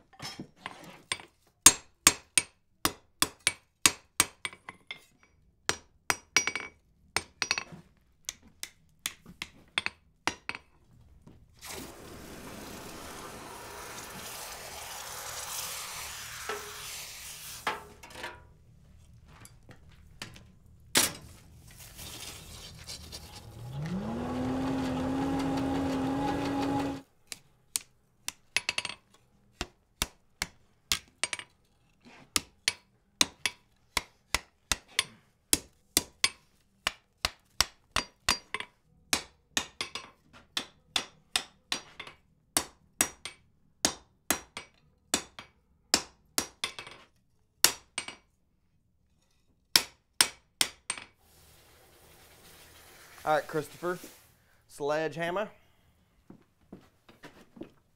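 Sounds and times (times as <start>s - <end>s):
small motor whirring: 23.4s - 27.0s.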